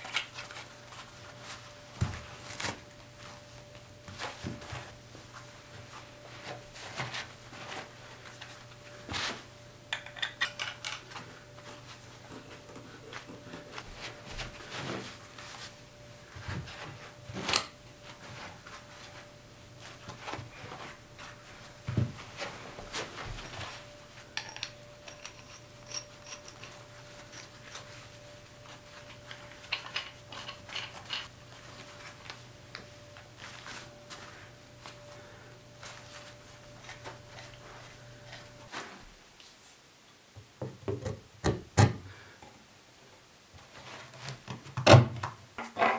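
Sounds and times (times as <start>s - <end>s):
faint steady hum: 0.0s - 45.9s
metal pipe fittings clinking: 9.9s - 11.0s, 17.5s - 17.8s, 24.4s - 27.9s.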